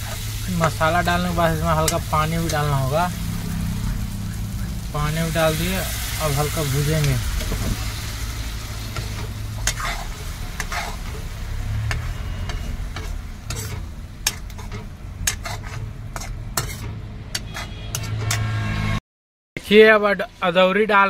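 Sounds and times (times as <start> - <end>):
curry sizzling in a pan: 0.0 - 18.4
ladle scraping a metal pan: 8.9 - 11.3, 11.9 - 18.5.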